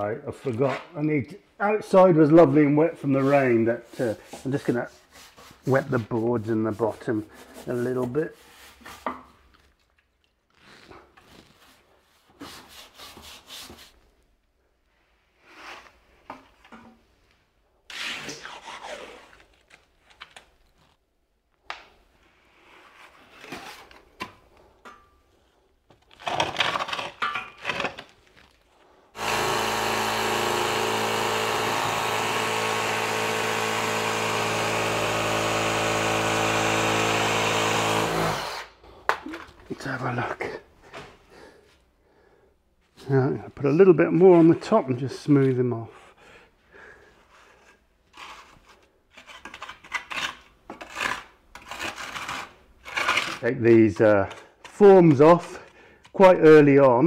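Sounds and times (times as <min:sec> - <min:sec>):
brush and trowel scraping: 0:03.0 - 0:09.9, 0:10.5 - 0:14.2, 0:47.1 - 0:56.3
reciprocating saw running: 0:29.2 - 0:38.7.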